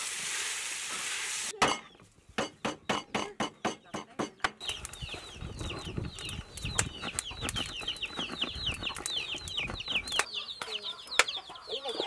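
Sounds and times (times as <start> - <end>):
chicks peeping: 4.6 - 12.0.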